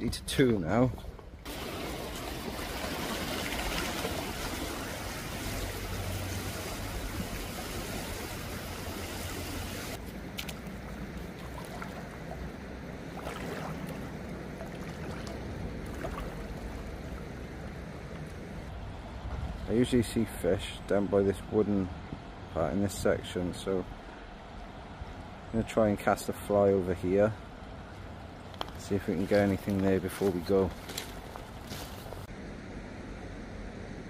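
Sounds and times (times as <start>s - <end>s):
river water rushing over shallows: 1.4s - 19.2s
person wading splashes: 1.5s - 18.6s.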